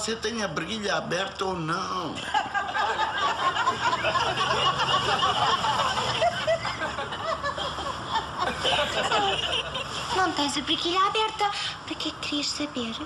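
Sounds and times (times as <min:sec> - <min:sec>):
studio audience laughing: 0:02.2 - 0:10.1.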